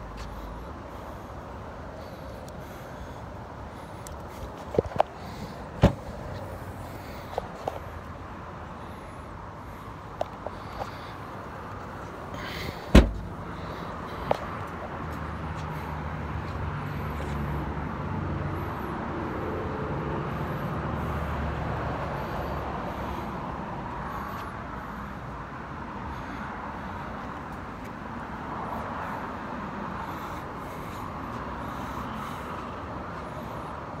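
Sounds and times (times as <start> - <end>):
low engine hum: 0.0 - 24.0
open-air noise: 0.0 - 34.0
car liftgate shutting thump: 5.8 - 6.0, 12.9 - 13.3.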